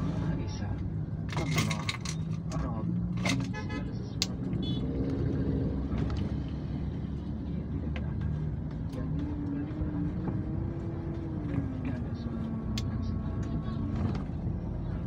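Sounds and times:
road rumble: 0.0s - 15.0s
vehicle engines running: 0.0s - 15.0s.

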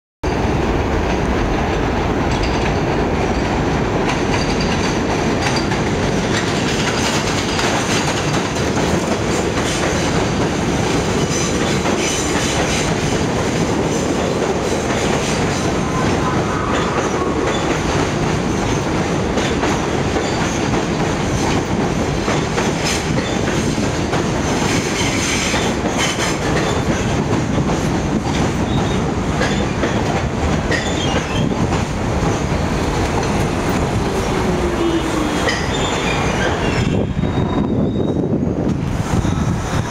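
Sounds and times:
subway train wheels clattering over rail joints: 0.2s - 39.9s.

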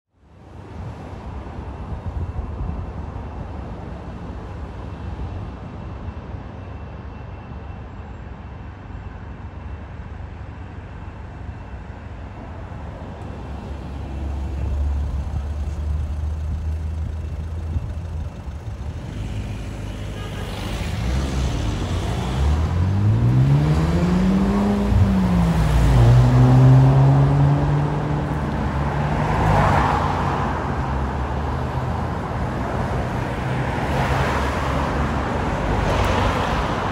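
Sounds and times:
road traffic rumble: 0.1s - 36.9s
vehicle engine accelerating: 13.8s - 32.1s.

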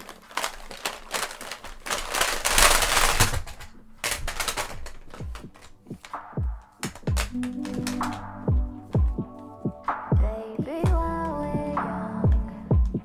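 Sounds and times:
cassette cases clattering: 0.0s - 6.2s, 6.8s - 8.5s.

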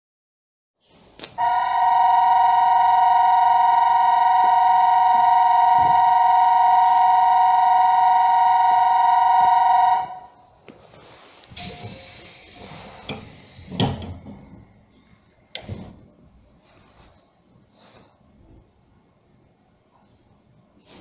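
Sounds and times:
two-note train horn blast: 1.4s - 10.3s.

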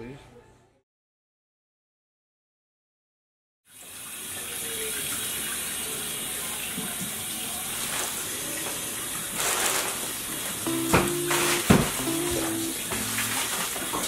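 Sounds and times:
tap water running into sink: 3.7s - 14.0s
plastic bag rustling: 7.8s - 8.3s, 9.2s - 10.6s.

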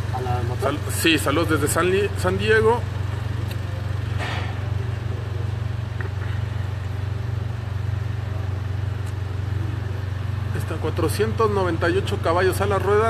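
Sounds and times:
pulsing mechanical hum: 0.0s - 13.0s.

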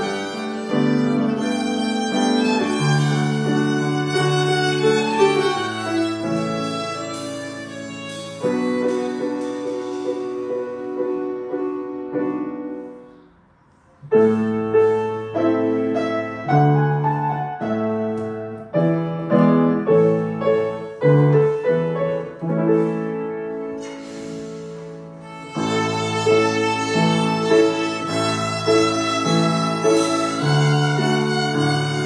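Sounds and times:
grand piano playing: 0.0s - 32.0s.

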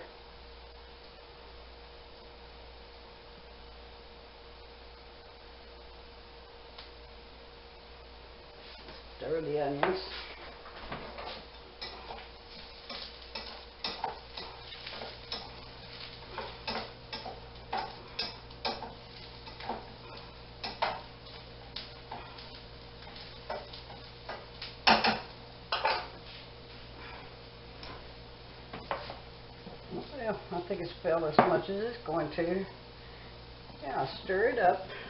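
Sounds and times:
utensil scraping a pan: 11.3s - 21.5s.

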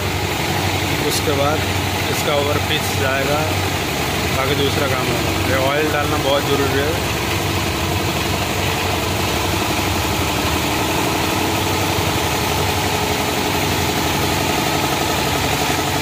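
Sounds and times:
diesel engine idling: 0.0s - 16.0s.

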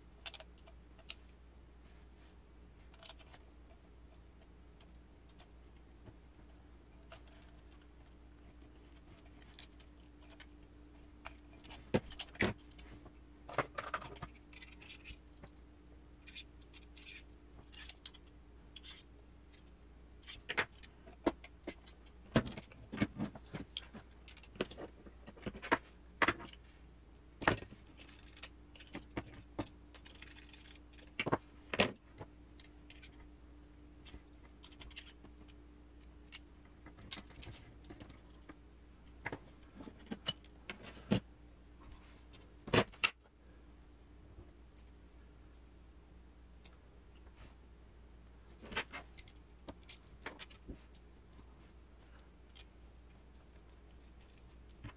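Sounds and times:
metal parts and tools clinking: 16.2s - 20.9s.

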